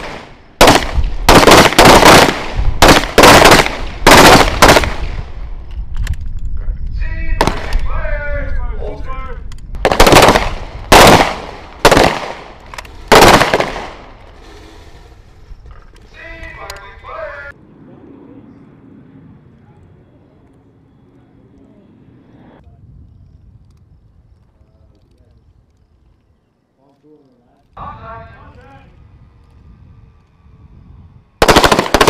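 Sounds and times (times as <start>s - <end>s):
pistol shots: 0.0s - 5.2s, 7.4s - 7.8s, 9.8s - 14.0s, 31.4s - 32.0s.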